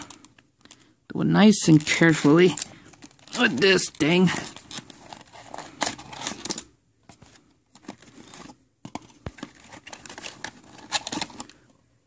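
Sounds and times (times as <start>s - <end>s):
cardboard and plastic crinkling: 0.0s - 11.8s.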